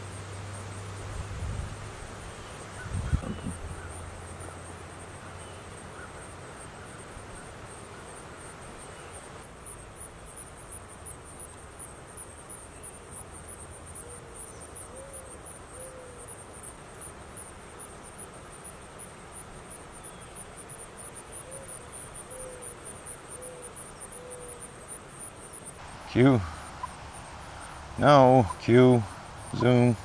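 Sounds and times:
faint hiss: 0.0 - 30.0
insect chirping: 0.0 - 30.0
low hooting animal calls: 2.8 - 4.6, 25.8 - 30.0.

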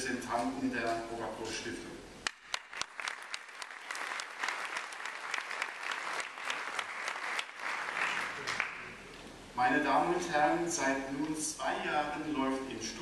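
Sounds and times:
audience applauding: 2.2 - 9.1.

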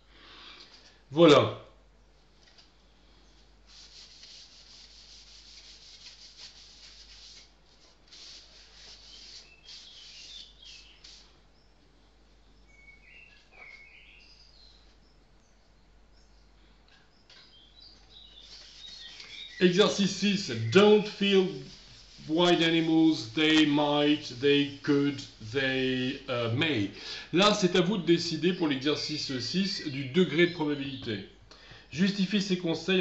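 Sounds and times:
scratching and rubbing: 3.7 - 11.3, 18.4 - 25.6
bird chirps: 9.0 - 11.8, 12.4 - 21.2.

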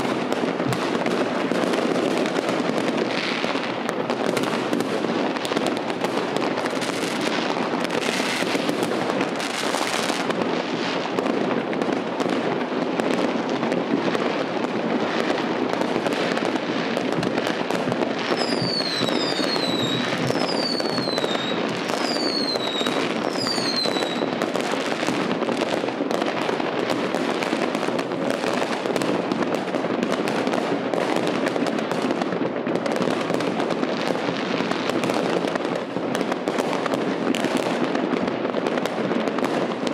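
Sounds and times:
fireworks crackling and banging: 0.0 - 39.9
falling firework whistles: 18.3 - 24.4.

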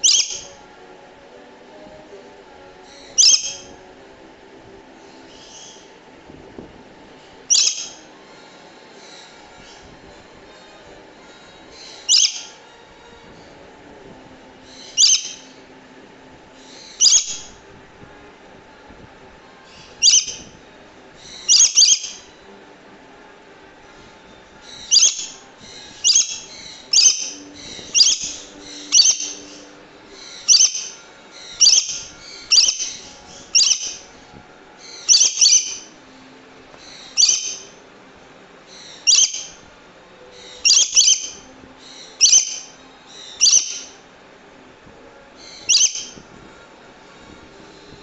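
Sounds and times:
lorikeet screeching calls: 0.0 - 0.6, 2.9 - 3.7, 5.3 - 5.9, 7.5 - 8.0, 11.8 - 12.6, 14.7 - 15.6, 16.6 - 17.5, 19.7 - 20.5, 21.2 - 22.3, 24.6 - 34.1, 34.8 - 36.0, 36.8 - 37.8, 38.7 - 39.6, 40.4 - 44.0, 45.4 - 46.2.

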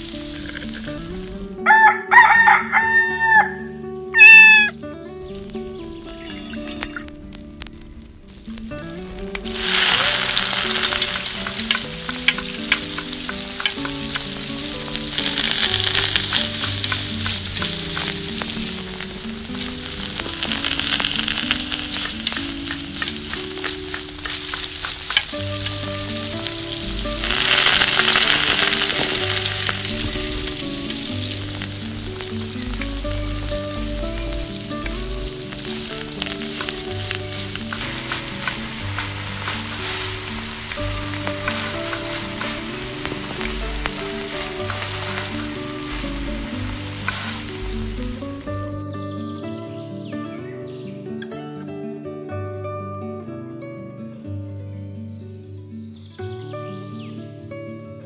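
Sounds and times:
oil sizzling in a pan: 0.0 - 1.9, 6.0 - 48.8
soft melodic background music: 0.0 - 58.0.

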